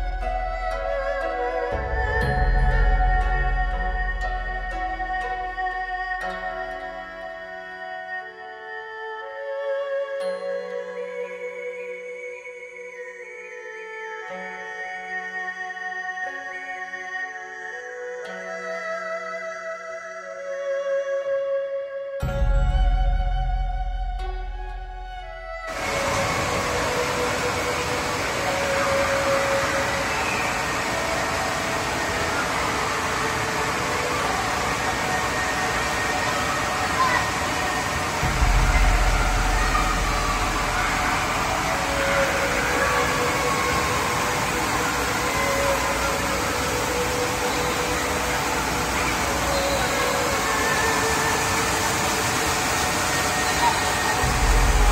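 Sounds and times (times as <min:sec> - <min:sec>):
music: 0:00.0 - 0:54.9
water pouring and splashing: 0:25.6 - 0:54.9.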